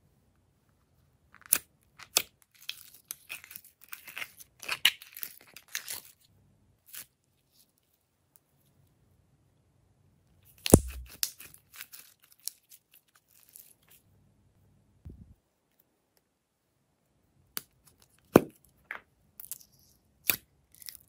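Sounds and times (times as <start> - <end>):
slime crackling and tearing: 10.7 - 12.7.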